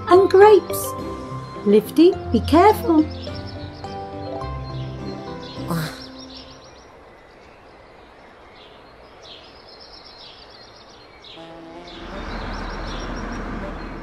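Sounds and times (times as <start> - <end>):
bird chirps: 0.2 - 14.0
truck engine rumble: 11.8 - 14.0.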